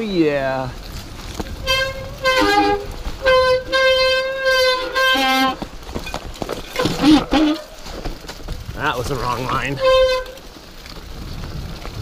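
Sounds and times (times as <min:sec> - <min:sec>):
tyres rattling over rocks: 0:00.0 - 0:12.0
bike disc brakes squealing: 0:01.5 - 0:07.7, 0:09.5 - 0:10.4.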